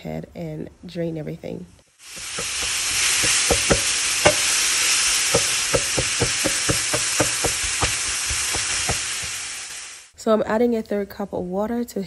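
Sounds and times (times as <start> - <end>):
meat sizzling in frying pan: 1.9 - 10.1
spatula knocking against pan: 2.1 - 4.6, 5.2 - 9.4.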